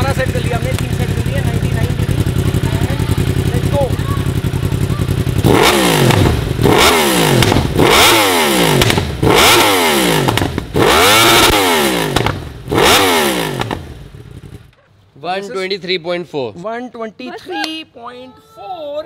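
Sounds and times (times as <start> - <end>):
motorcycle engine revving: 0.0 - 14.8.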